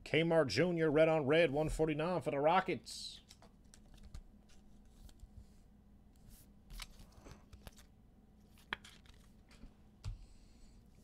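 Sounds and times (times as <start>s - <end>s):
trading cards rustling and clicking: 3.2s - 5.4s, 6.7s - 9.7s.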